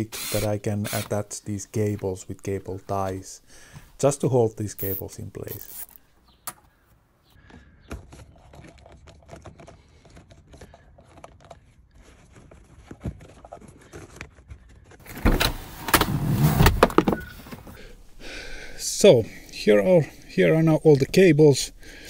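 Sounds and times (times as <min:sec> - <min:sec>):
rustling and scraping of plastic: 0:08.0 - 0:17.8.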